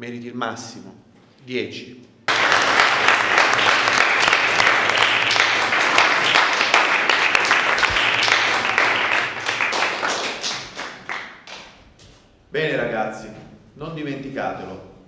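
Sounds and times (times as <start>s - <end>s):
students clapping: 2.3s - 11.8s.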